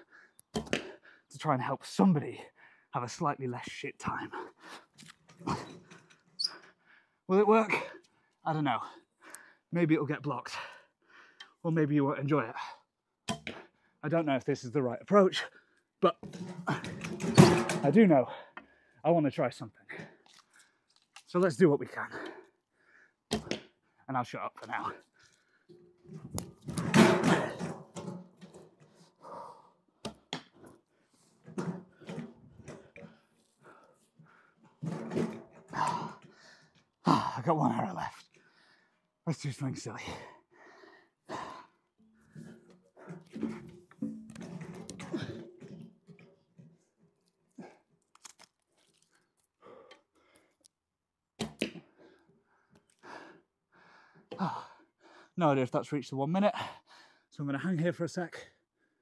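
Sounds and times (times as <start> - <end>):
small rustles and clicks: 20.2 - 21.4
person breathing: 22.3 - 23.2, 29.0 - 29.8, 40.3 - 43.3.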